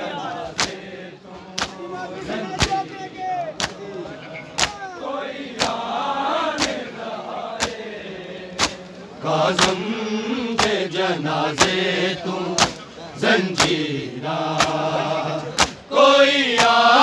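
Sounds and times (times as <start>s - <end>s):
men chanting: 0.0s - 17.0s
hands slapping chests: 0.5s - 0.8s, 1.5s - 1.9s, 2.5s - 2.9s, 3.5s - 3.9s, 4.5s - 4.9s, 5.5s - 5.9s, 6.6s - 6.9s, 7.6s - 7.8s, 8.6s - 9.9s, 10.5s - 11.9s, 12.5s - 12.9s, 13.5s - 13.9s, 14.5s - 14.9s, 15.5s - 15.9s, 16.5s - 16.8s.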